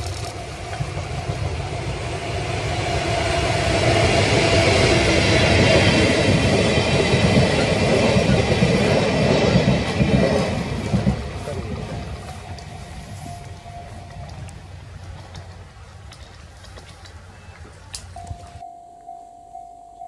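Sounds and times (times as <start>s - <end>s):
train wheels clattering on rails: 3.2s - 14.4s.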